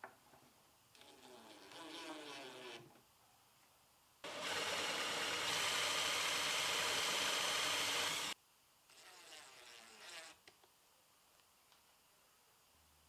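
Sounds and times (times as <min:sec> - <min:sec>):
cordless drill driving screw: 0:04.3 - 0:08.4
drill boring into wood: 0:04.3 - 0:08.4.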